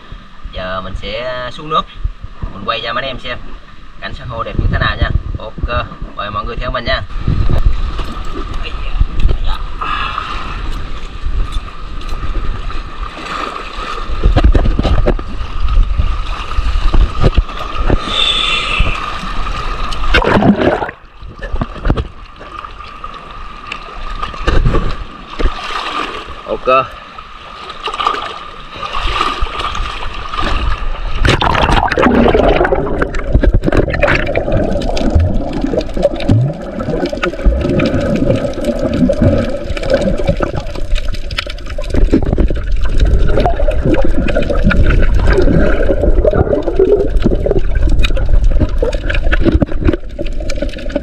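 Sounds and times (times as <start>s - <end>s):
gurgling bubbles: 12.5s - 22.0s, 28.8s - 51.0s
seawater sloshing: 27.4s - 51.0s
muffled underwater rumble: 30.6s - 51.0s.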